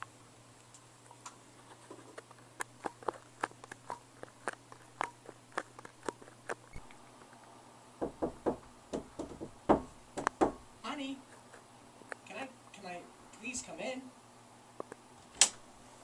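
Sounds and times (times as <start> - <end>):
knocking on a door: 8.0 - 10.7.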